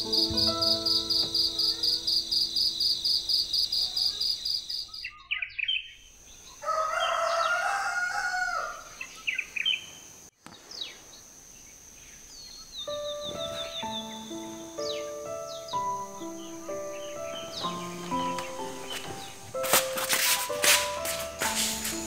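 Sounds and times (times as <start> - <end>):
small birds chirping: 0.0 - 7.7, 8.8 - 20.2
crickets chirping: 0.0 - 22.0
rooster crowing: 6.6 - 9.0.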